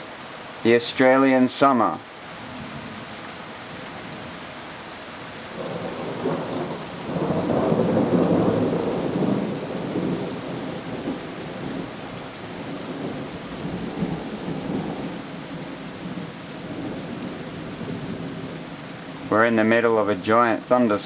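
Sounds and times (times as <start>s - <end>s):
steady rain: 0.0s - 21.0s
thunder rolling: 5.5s - 18.6s.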